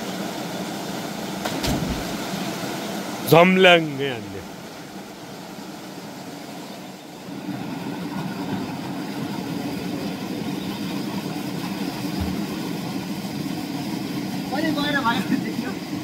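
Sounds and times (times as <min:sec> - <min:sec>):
drone propellers humming: 0:00.0 - 0:16.0.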